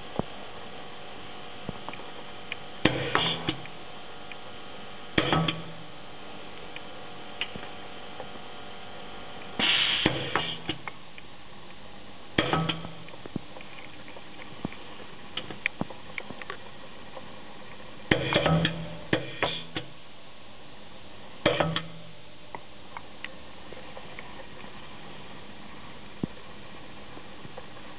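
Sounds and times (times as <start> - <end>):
short hiss of air: 9.6 - 10.7.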